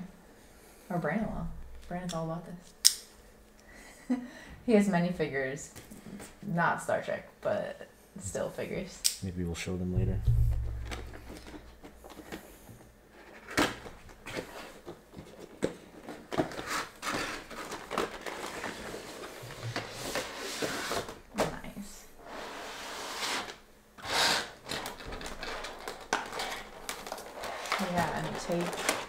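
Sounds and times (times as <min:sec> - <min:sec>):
cardboard and plastic rustling: 0:10.6 - 0:21.7, 0:24.4 - 0:29.0.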